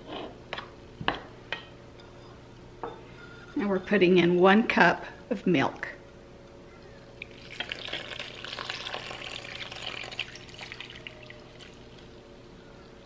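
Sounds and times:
milk pouring into bowl: 7.2 - 12.1.

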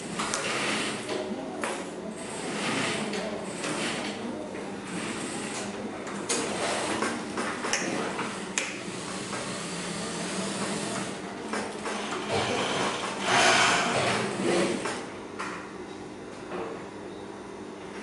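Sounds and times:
sewing machine humming: 0.0 - 1.4, 2.1 - 15.1.

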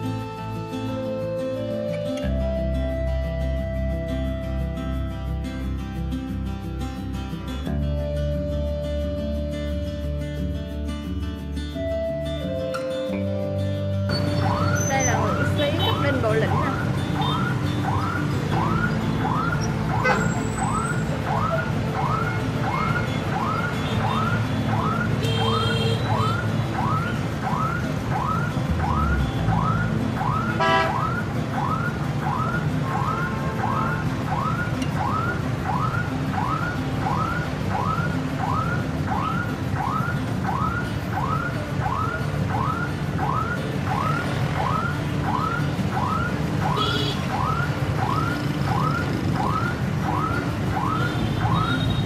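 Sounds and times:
street traffic: 0.0 - 52.0
electronic siren whooping: 14.1 - 52.0.

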